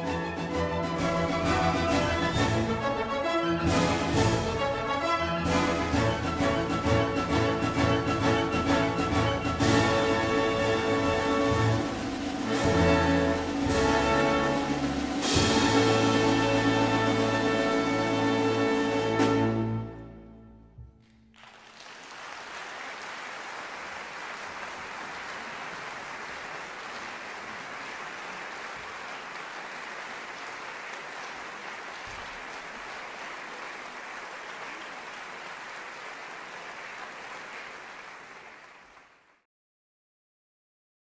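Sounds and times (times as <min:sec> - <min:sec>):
audience applause: 0:21.0 - 0:39.4.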